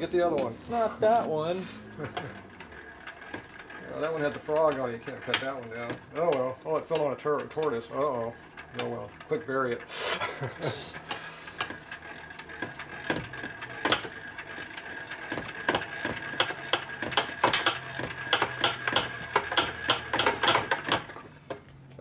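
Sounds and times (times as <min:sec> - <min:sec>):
wrench clicking and knocking on metal: 0:02.1 - 0:07.9, 0:11.0 - 0:21.6.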